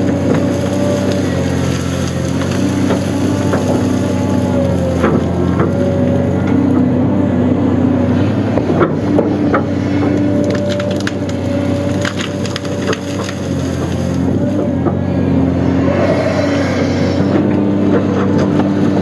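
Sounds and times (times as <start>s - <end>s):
wood cracking and snapping: 0.0s - 6.0s, 9.5s - 14.6s
excavator diesel engine running: 0.0s - 19.0s.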